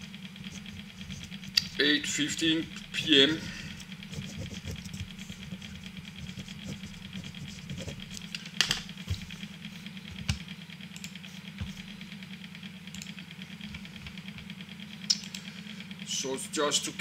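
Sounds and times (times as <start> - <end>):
steady background hum: 0.0 - 17.0
computer mouse clicks: 11.0 - 11.8, 12.9 - 13.2, 15.1 - 15.5.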